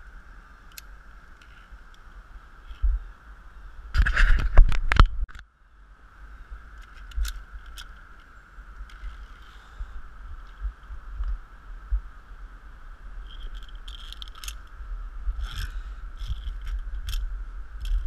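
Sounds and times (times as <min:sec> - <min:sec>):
carabiners clinking along steel cable: 0:13.2 - 0:14.7, 0:15.4 - 0:18.0.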